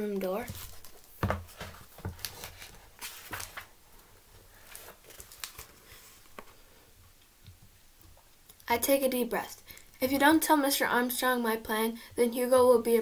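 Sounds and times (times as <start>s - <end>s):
book pages rustling: 0.2s - 6.7s.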